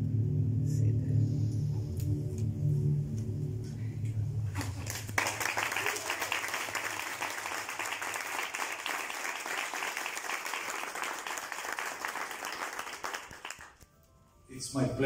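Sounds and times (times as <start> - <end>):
low musical drone: 0.0 - 5.8
audience applauding: 4.6 - 13.8.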